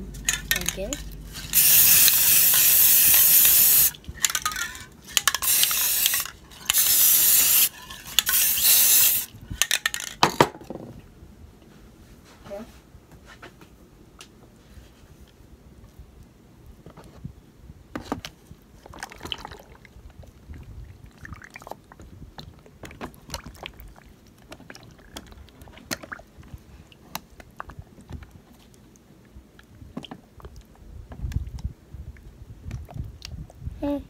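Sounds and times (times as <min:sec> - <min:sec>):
small water splashes: 0:18.8 - 0:27.8.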